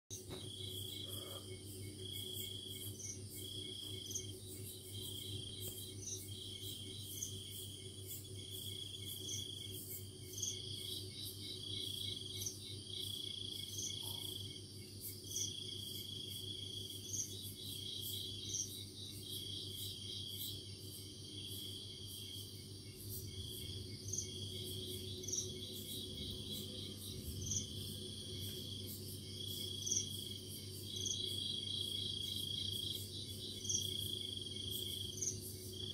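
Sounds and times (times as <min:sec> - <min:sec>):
low steady hum: 0:00.1 - 0:35.9
insect trilling: 0:00.6 - 0:35.9.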